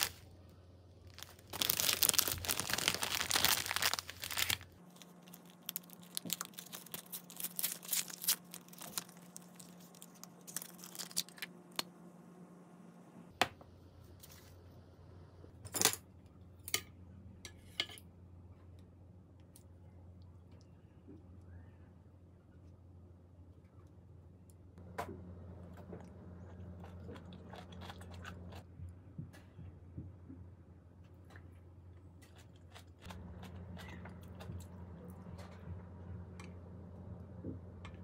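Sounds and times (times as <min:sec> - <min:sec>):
plastic wrapper crinkling: 0:00.0 - 0:00.2, 0:01.1 - 0:11.8.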